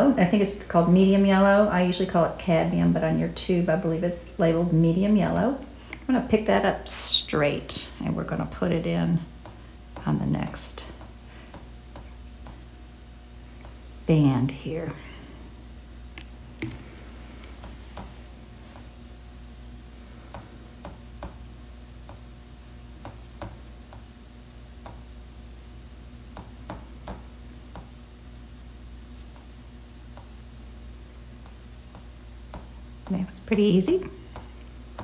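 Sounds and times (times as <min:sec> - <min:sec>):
room hum: 0:00.0 - 0:35.0.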